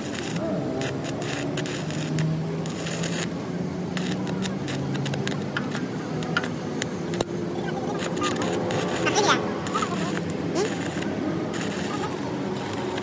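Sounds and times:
clicks and scrapes: 0:04.0 - 0:07.3.

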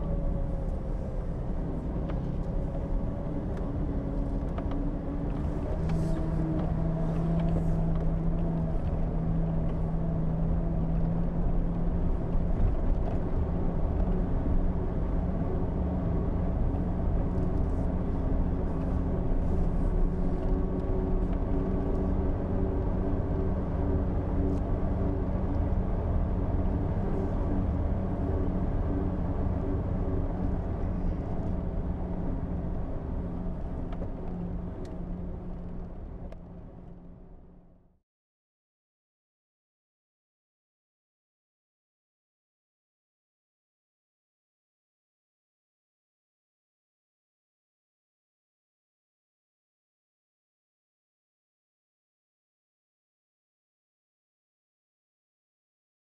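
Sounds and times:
low road rumble: 0:00.0 - 0:38.0.

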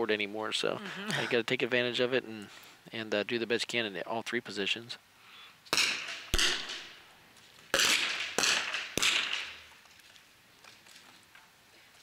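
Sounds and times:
rifle shots: 0:05.7 - 0:07.0, 0:07.7 - 0:09.7.

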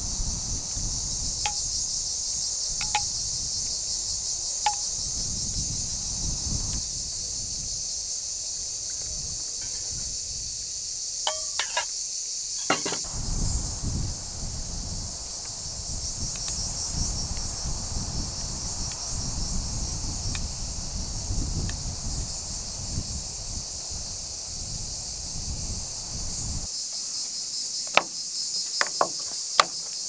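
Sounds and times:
wind rumble on microphone: 0:00.0 - 0:10.9, 0:13.0 - 0:26.7
insects chorus: 0:00.0 - 0:30.0
metal spoon clinking a bowl: 0:11.3 - 0:11.9, 0:12.6 - 0:13.1.

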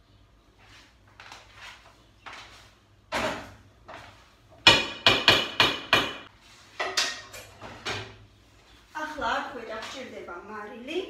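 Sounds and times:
kitchenware clanking: 0:06.8 - 0:08.2.

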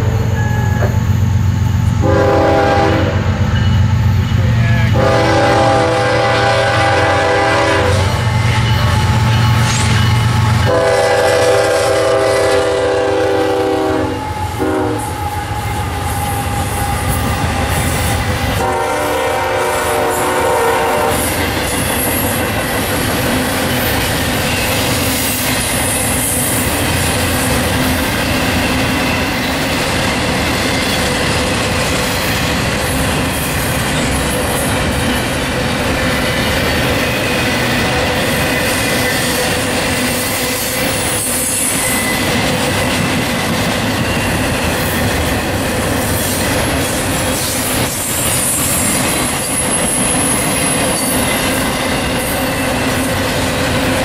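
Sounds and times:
train rumbling past: 0:00.0 - 0:54.0
train horn blasts: 0:02.0 - 0:03.4, 0:04.7 - 0:21.6.

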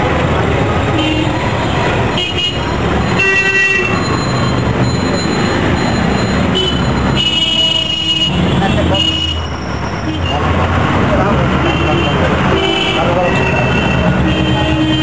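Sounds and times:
road traffic noise: 0:00.0 - 0:15.0
vehicle horn toots: 0:02.2 - 0:04.2, 0:11.6 - 0:15.0.

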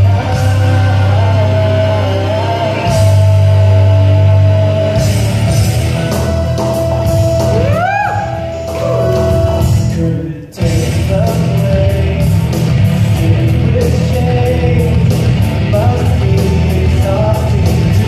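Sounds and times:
man singing into microphone: 0:00.0 - 0:05.2, 0:08.8 - 0:18.0
rock backing track over speakers: 0:00.0 - 0:18.0.

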